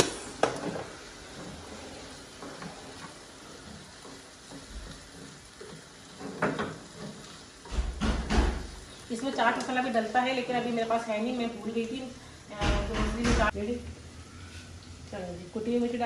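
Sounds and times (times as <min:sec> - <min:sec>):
food sizzling in frying pan: 0:00.0 - 0:16.0
spoon stirring and scraping: 0:00.6 - 0:07.9
spoon knocking on pan: 0:03.8 - 0:08.8.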